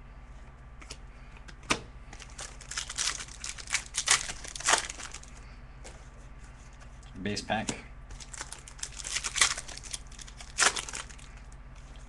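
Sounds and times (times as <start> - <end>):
wrapper crinkling and tearing: 2.2 - 5.4, 8.1 - 11.4.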